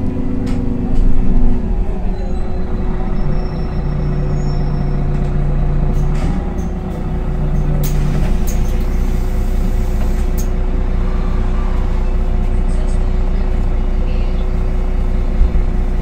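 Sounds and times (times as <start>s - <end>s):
bus idling: 0.0s - 16.0s
low hum: 0.0s - 16.0s.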